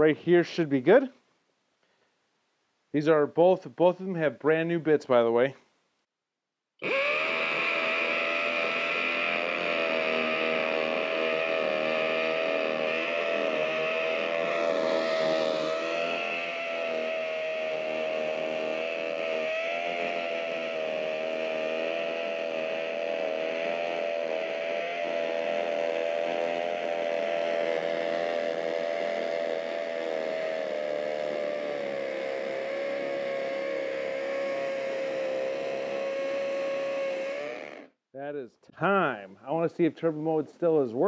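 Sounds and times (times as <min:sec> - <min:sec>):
hammer drill boring into concrete: 0:06.8 - 0:20.8.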